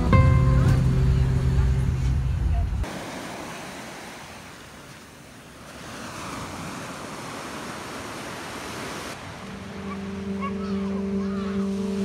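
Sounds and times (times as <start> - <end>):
waves washing on pebbly beach: 2.8 - 9.3.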